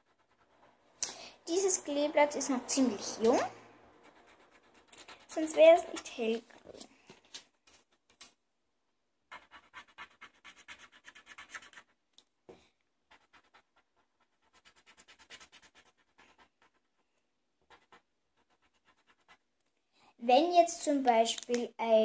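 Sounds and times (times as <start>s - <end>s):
felt-tip pen scratching on paper: 0.0s - 0.8s, 4.0s - 6.4s, 9.3s - 12.0s, 13.1s - 17.0s, 17.6s - 19.5s.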